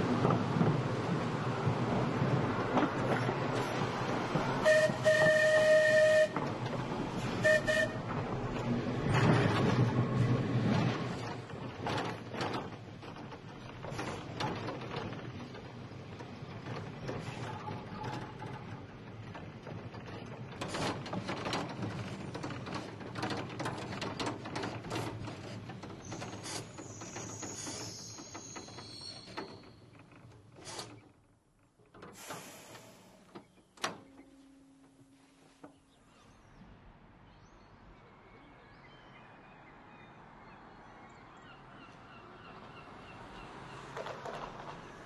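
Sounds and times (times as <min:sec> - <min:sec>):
tram wheels rattling and clicking: 0:00.0 - 0:34.4, 0:43.4 - 0:45.0
high wheel squeal: 0:26.0 - 0:29.8.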